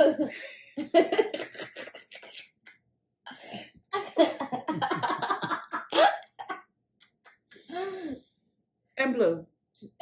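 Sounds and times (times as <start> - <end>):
woman and girl laughing: 4.0 - 6.5.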